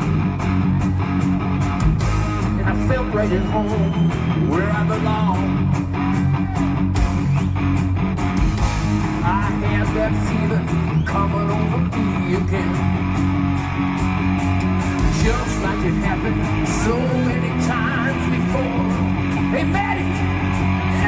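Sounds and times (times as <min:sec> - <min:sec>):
guitar: 0:00.0 - 0:21.0
steady drum beat: 0:00.0 - 0:21.0
person singing: 0:09.1 - 0:13.0, 0:15.0 - 0:21.0.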